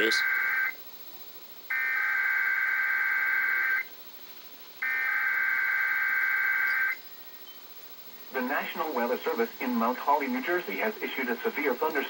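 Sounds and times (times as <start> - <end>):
warbling digital data tones: 4.8 - 7.0.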